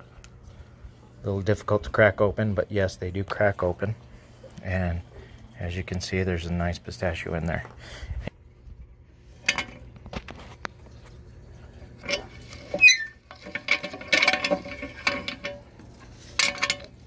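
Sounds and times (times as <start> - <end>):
nuts clattering through rollers: 12.0 - 17.0
short squeak: 12.7 - 13.2.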